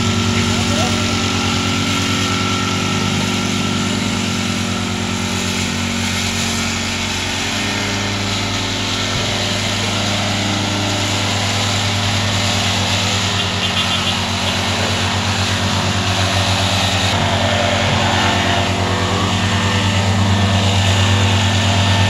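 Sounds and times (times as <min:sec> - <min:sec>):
plate compactor engine running: 0:00.0 - 0:22.0.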